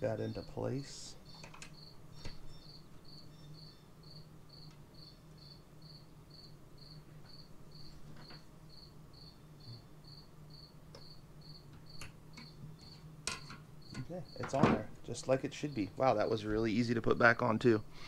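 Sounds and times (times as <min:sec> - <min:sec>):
low steady hum: 0:00.0 - 0:18.0
cricket chirping: 0:01.2 - 0:14.9.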